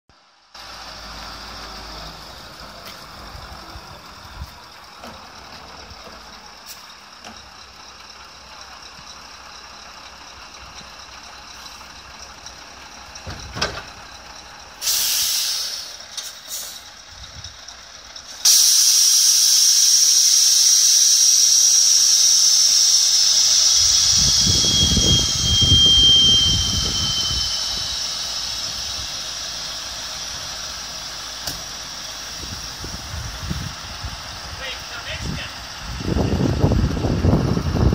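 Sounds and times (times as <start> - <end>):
compressed air hissing: 14.8 - 16.9, 18.3 - 33.8
brief squeal: 18.5 - 29.8.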